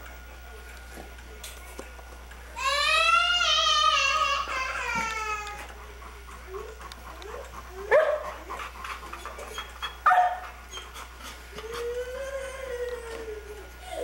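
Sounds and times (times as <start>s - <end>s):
dog whimpering: 6.5s - 14.0s
dog barking: 7.9s - 8.4s, 10.0s - 10.5s.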